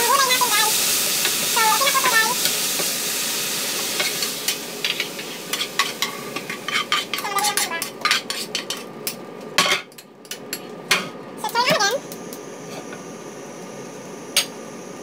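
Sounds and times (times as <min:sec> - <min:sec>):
vegetables sizzling in a pan: 0:00.0 - 0:09.9, 0:10.8 - 0:15.0
spatula scraping and knocking pan: 0:04.0 - 0:08.9.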